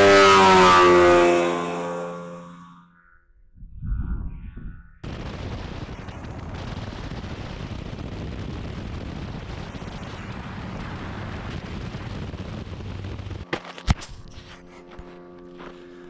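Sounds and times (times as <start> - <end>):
two-stroke engine roaring: 0.0 - 2.8
wind buffeting microphone: 3.6 - 13.4.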